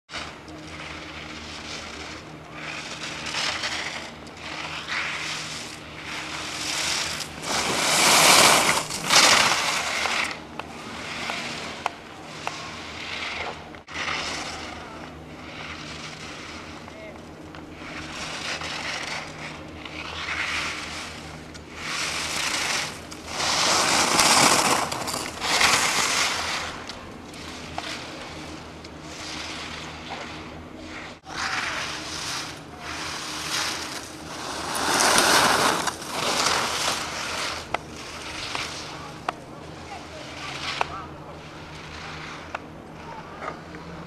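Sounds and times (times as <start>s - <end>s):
skis carving on hard snow: 0.1s - 44.0s.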